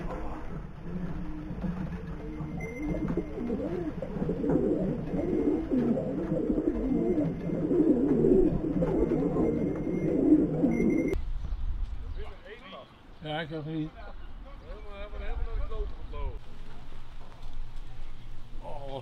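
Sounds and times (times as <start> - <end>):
pigeons cooing: 0.0 - 11.2.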